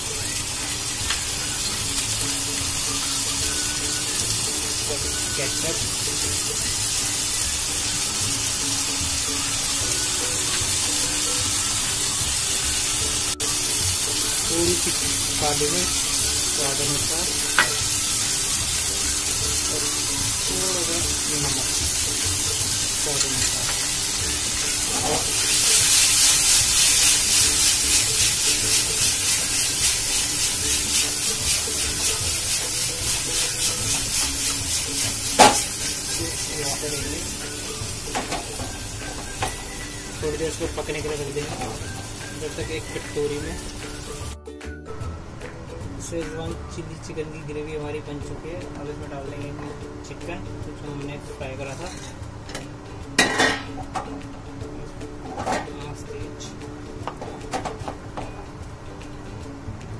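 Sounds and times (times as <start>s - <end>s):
vegetables sizzling in oil: 0.0s - 45.0s
soft background music: 0.0s - 59.9s.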